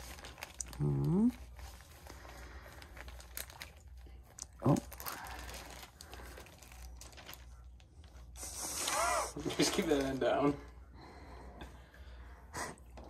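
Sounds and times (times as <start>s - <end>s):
plastic and paper crinkling: 0.0s - 10.6s
person humming: 0.8s - 1.4s.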